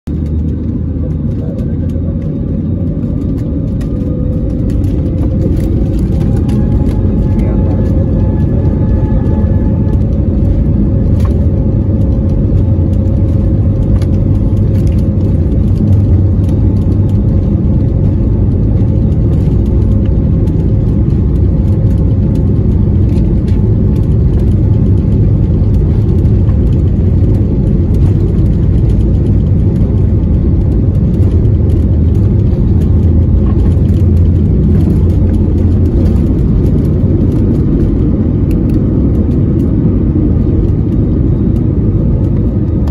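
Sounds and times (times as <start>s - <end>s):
steady engine tone: 0.0s - 42.9s
jet engines rumbling: 0.1s - 42.9s.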